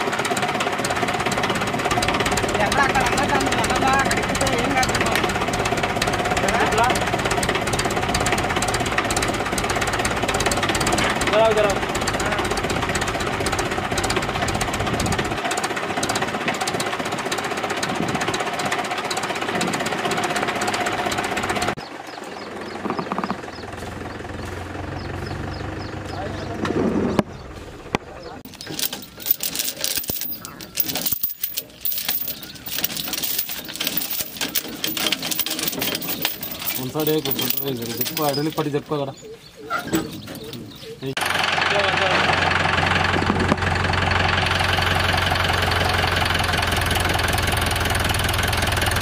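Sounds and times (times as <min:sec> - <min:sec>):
diesel tractor engine clattering: 0:00.0 - 0:21.9, 0:22.5 - 0:49.0
metal chain clinking and rattling: 0:28.4 - 0:38.9, 0:39.8 - 0:41.0.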